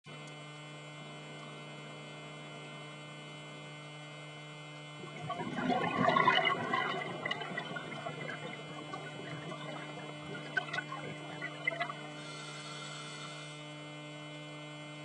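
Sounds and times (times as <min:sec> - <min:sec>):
regulator bubbling: 0:05.0 - 0:12.5
underwater hum: 0:05.0 - 0:13.6.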